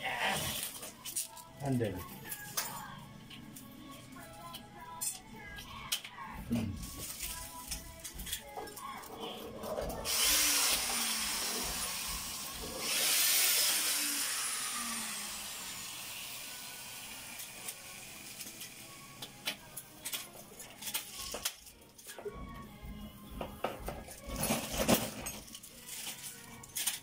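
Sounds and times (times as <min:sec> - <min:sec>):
power tool whine: 0:10.0 - 0:18.9.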